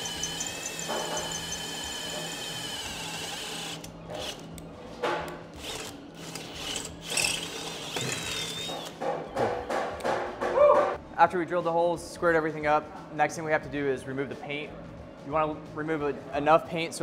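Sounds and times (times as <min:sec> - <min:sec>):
cordless drill boring into steel: 0:00.0 - 0:03.9.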